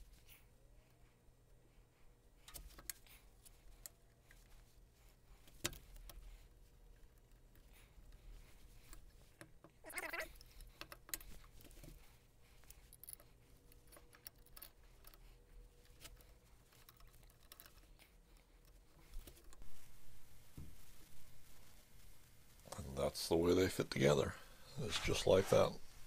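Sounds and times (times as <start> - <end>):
small metal parts clicking: 12.6 - 19.6
metal scrape: 24.7 - 26.0.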